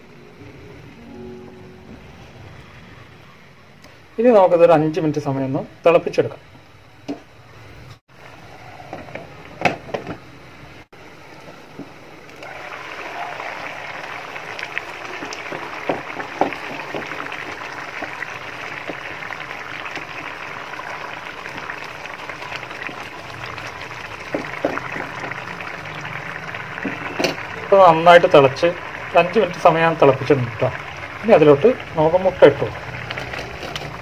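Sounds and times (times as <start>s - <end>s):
gravy bubbling and hissing: 12.3s - 34.0s.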